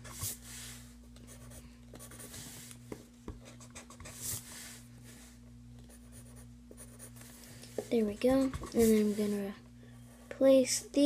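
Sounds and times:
pencil drawing on paper: 0:00.0 - 0:02.8, 0:05.9 - 0:10.5
steady low hum: 0:00.0 - 0:11.0.

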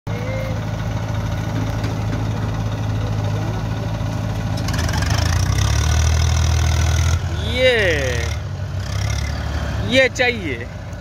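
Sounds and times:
diesel engines idling: 0:00.1 - 0:11.0.

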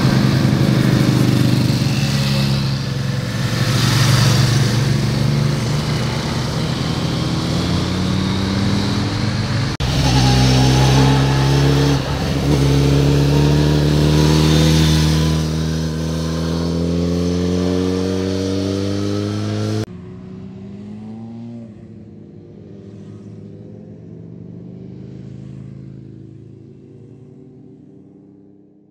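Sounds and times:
motorcycle engine accelerating: 0:00.0 - 0:28.6.

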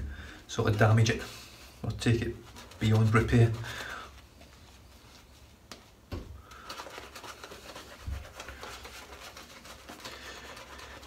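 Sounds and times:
shaving brush scrubbing lather: 0:02.0 - 0:03.6, 0:06.7 - 0:11.0.

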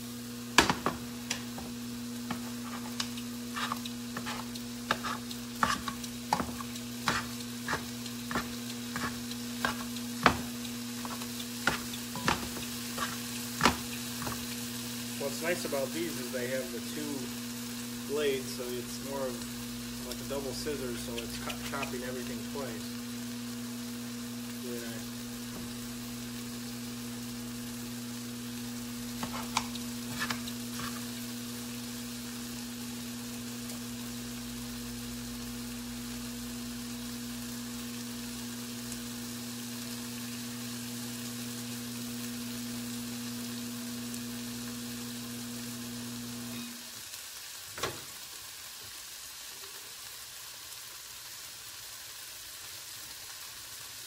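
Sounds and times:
electric hum: 0:00.0 - 0:46.8
chicken sizzling in a frying pan: 0:00.0 - 0:54.0
utensil clicking against pan: 0:02.2 - 0:14.5, 0:29.2 - 0:31.1.

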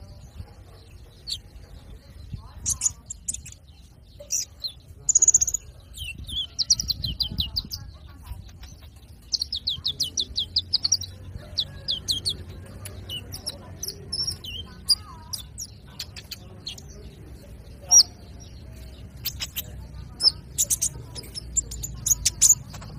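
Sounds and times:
bird chips: 0:00.6 - 0:22.9
rapid high bird notes: 0:17.9 - 0:22.9.

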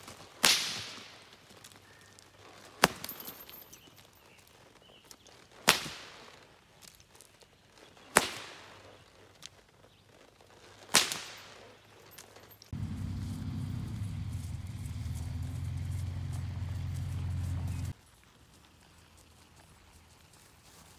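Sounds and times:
whip cracking: 0:00.4 - 0:01.2, 0:08.2 - 0:08.7, 0:10.9 - 0:11.6
steady low rumble: 0:12.8 - 0:17.9.

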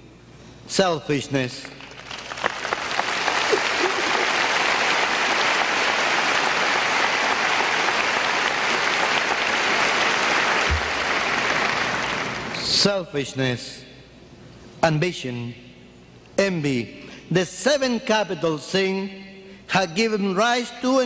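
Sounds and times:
audience applauding: 0:01.8 - 0:12.6.

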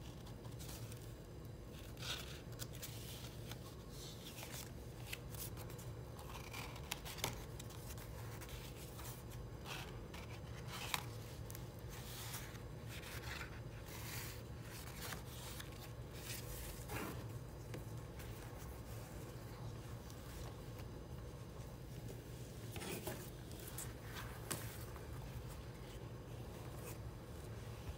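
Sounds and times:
stiff paper pages turning: 0:00.1 - 0:21.0.

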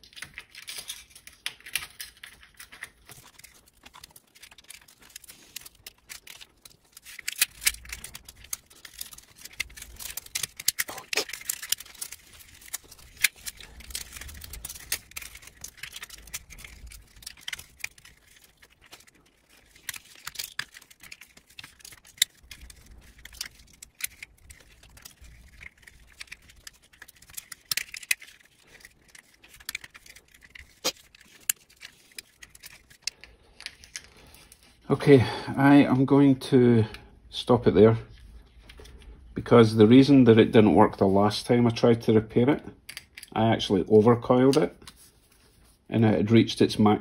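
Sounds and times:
small metallic clicks and rattles: 0:00.0 - 0:34.8, 0:42.8 - 0:43.4.

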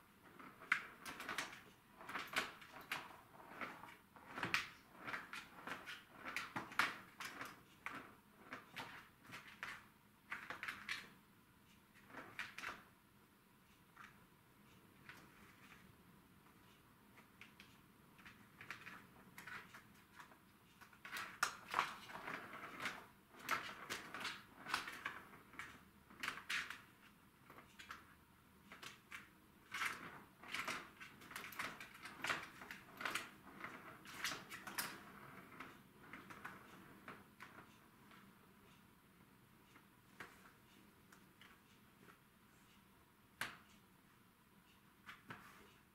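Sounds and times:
ball and paws clattering on plastic: 0:00.2 - 0:11.1, 0:17.2 - 0:28.1, 0:28.7 - 0:38.2.

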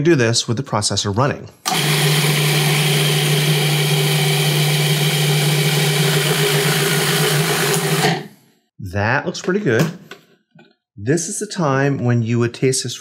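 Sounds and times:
food processor motor humming: 0:01.7 - 0:08.3.

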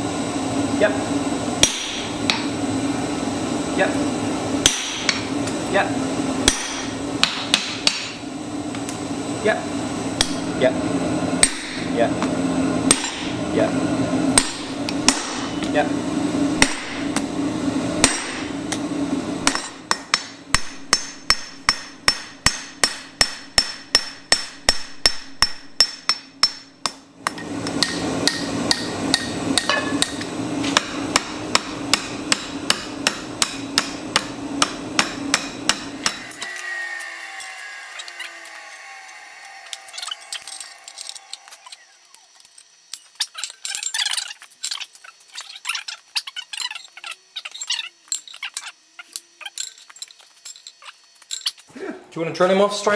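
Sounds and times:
steady low hum: 0:00.0 - 0:52.9
hammer forging metal on anvil: 0:01.6 - 0:02.5, 0:04.6 - 0:05.6, 0:06.4 - 0:08.2, 0:10.2 - 0:10.5, 0:11.4 - 0:11.9, 0:12.9 - 0:13.4, 0:14.3 - 0:15.7, 0:16.6 - 0:17.3, 0:18.0 - 0:36.6.

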